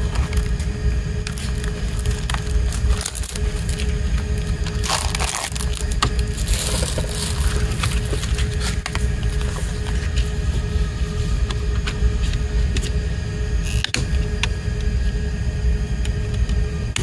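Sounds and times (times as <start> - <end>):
plastic wrapping crinkling: 1.2 - 10.3.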